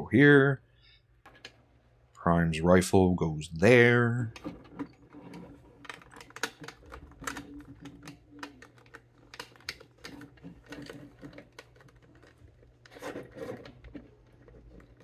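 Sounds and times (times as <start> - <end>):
plastic toy parts clicking: 5.8 - 13.6.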